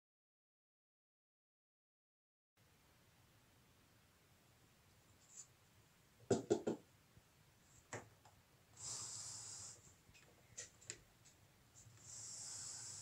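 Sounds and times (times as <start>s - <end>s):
faint air hisses: 8.6s - 13.0s.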